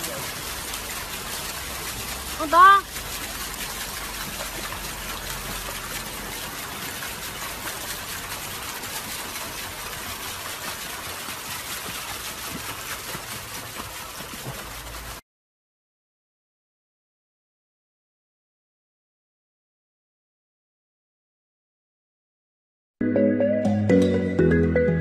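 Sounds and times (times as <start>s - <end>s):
pool water splashing: 0.0s - 15.2s.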